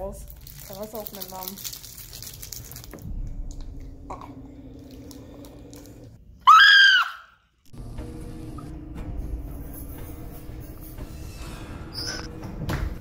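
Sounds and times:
candy wrapper crinkling: 0:00.1 - 0:03.1
low steady hum: 0:03.0 - 0:06.3
boy's high-pitched squeal: 0:06.5 - 0:07.4.

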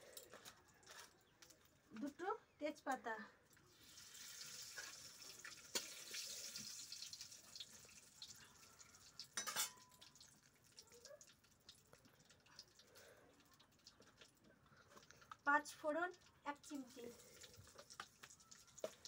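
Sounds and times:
leaves sizzling in hot oil: 0:03.7 - 0:10.8.

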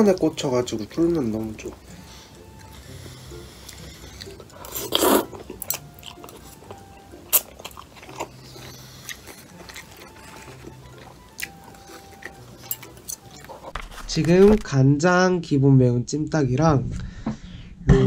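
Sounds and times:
chewing with mouth clicks: 0:01.6 - 0:13.8
noodle slurp: 0:02.7 - 0:05.5.

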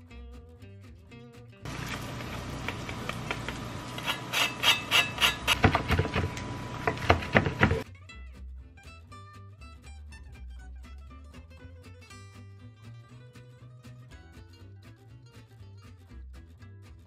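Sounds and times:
knife knocking on wooden board: 0:05.6 - 0:07.8.

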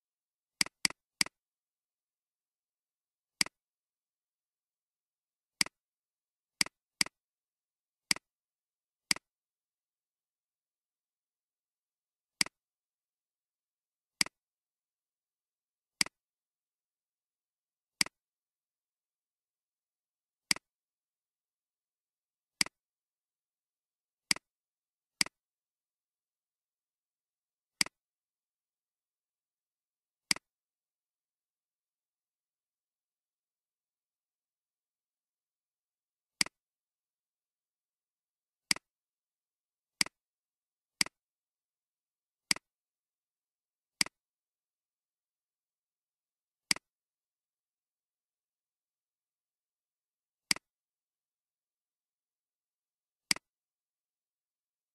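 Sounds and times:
computer mouse clicks: 0:20.5 - 0:20.7, 0:30.3 - 0:30.5, 0:46.7 - 0:46.9, 0:50.5 - 0:50.7.

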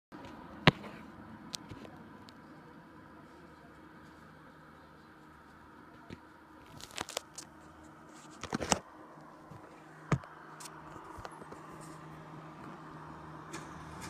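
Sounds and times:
faint engine hum: 0:00.1 - 0:14.0
phone handling rustles and knocks: 0:08.2 - 0:08.8.

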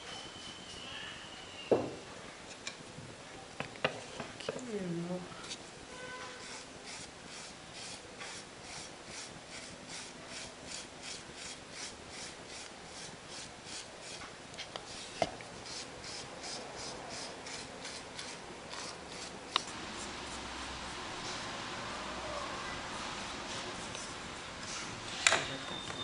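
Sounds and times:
hand rubbing clay rasping: 0:06.4 - 0:21.5.

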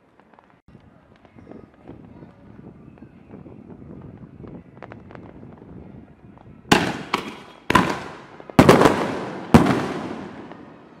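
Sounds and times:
faint fireworks crackles: 0:00.0 - 0:11.0
fireworks bangs: 0:06.7 - 0:11.0.

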